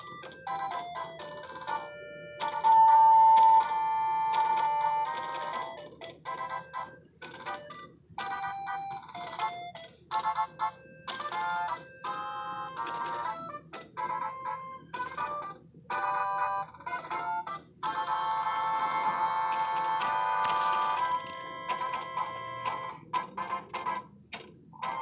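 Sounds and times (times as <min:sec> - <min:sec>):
toy electronic jingle: 0:00.0 - 0:24.1, 0:24.8 - 0:25.0
toy feet clicking: 0:00.0 - 0:25.0.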